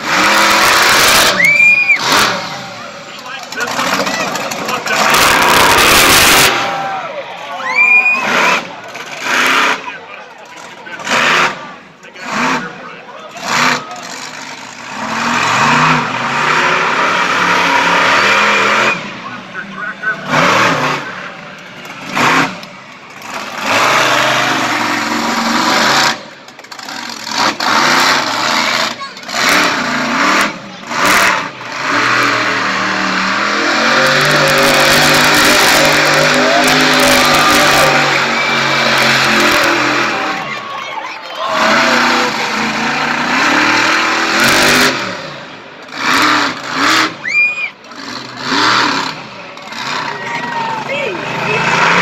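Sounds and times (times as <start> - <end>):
truck engine revving hard: 0.0 - 52.0
high whistle-like tone: 1.3 - 2.0, 7.6 - 8.3.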